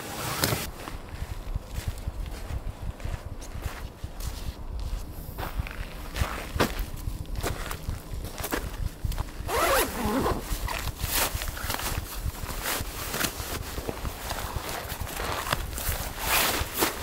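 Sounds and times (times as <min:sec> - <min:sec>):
zipper pulled: 0:09.4 - 0:11.3.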